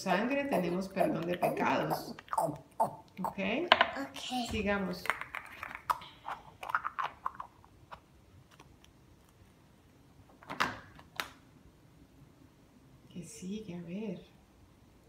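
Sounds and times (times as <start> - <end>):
plastic eggs clicking and knocking: 5.0 - 8.7.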